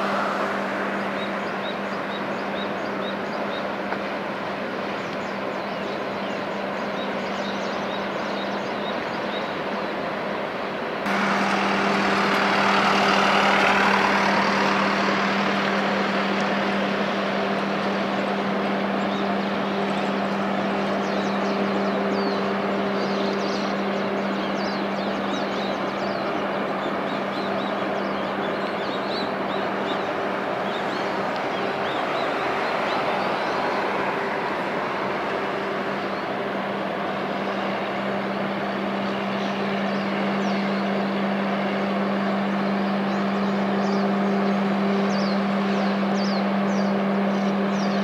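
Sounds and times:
steady rushing noise: 0.0s - 3.5s, 10.8s - 21.9s, 28.5s - 42.5s
ship machinery low hum: 0.0s - 7.2s, 10.2s - 48.0s.

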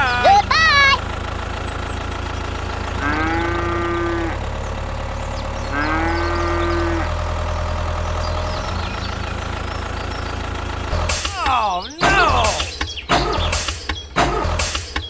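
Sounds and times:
low engine hum: 0.0s - 15.0s
cow mooing: 3.0s - 4.4s, 5.7s - 7.1s.

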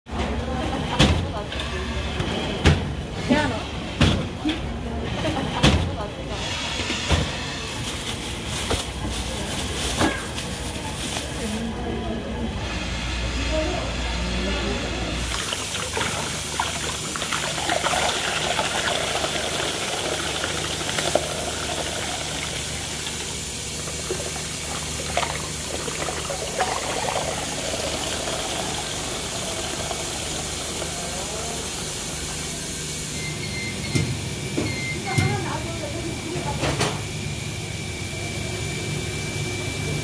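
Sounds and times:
liquid splashing and gurgling: 15.2s - 30.9s.

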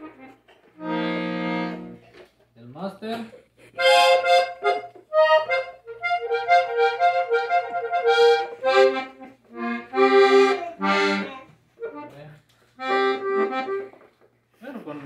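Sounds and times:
button accordion played haltingly: 0.0s - 2.0s, 3.8s - 12.2s, 12.8s - 14.0s.

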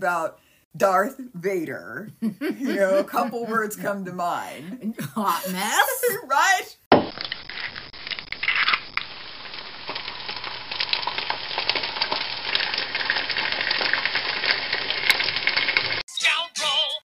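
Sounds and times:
crackling and sizzling: 6.9s - 16.0s.

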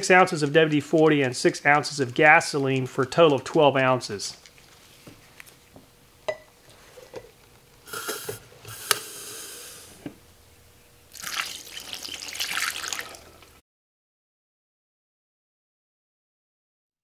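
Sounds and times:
aerosol can spraying: 7.9s - 10.0s
fuel splashing through funnel: 11.1s - 13.3s.

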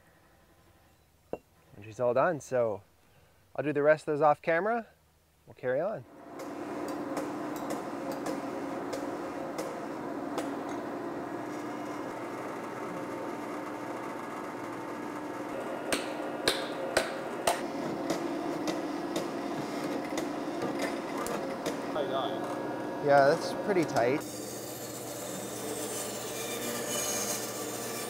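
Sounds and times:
hydraulic press humming: 6.2s - 27.8s.

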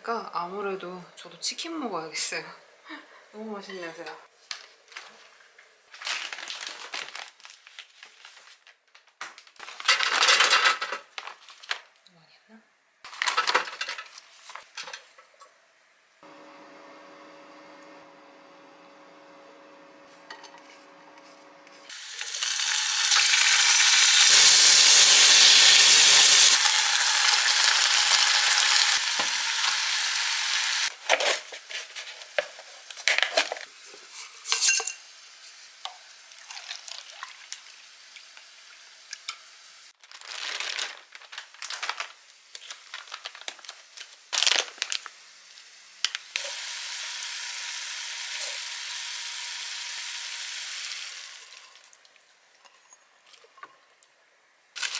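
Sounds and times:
garlic sizzling in hot oil: 21.9s - 30.9s, 45.0s - 52.0s.

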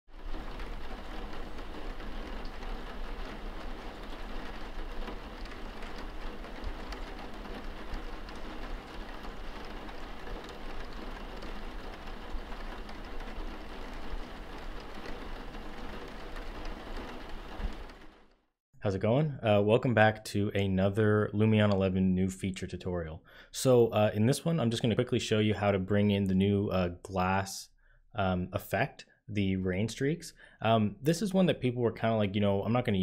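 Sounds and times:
rain patter: 0.1s - 18.3s, 23.6s - 27.4s, 29.8s - 33.0s.

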